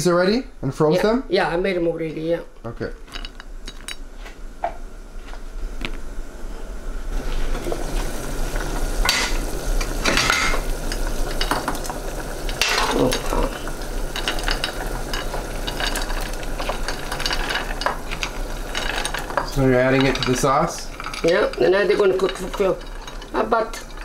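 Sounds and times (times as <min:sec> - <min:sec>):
sauce sizzling in pot: 0:07.1 - 0:24.0.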